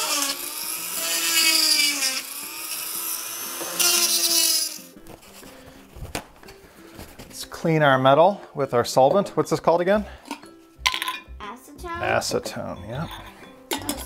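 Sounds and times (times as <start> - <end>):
rotary tool whining: 0.0 - 4.9.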